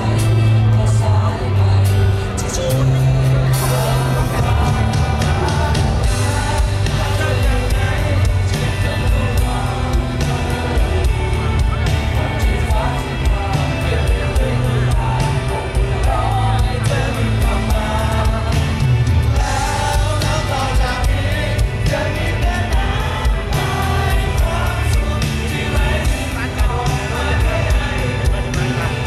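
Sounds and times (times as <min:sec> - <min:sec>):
bass guitar: 0:00.0 - 0:29.0
man singing: 0:00.0 - 0:29.0
drum beat: 0:04.3 - 0:29.0.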